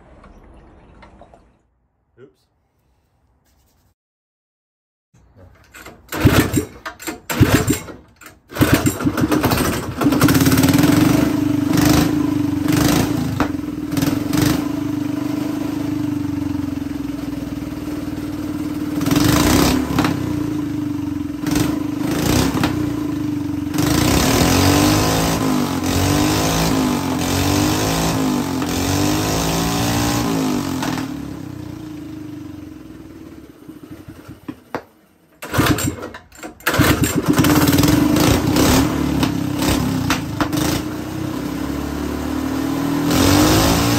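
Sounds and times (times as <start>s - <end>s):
pull starter cord: 5.2s - 11.0s, 33.6s - 40.9s
small engine running: 8.5s - 13.2s, 35.4s - 41.0s.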